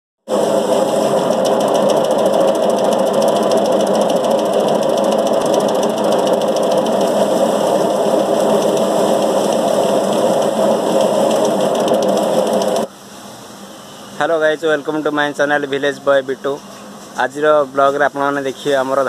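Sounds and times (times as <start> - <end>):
thresher drum rattling and humming: 0.3 - 12.9.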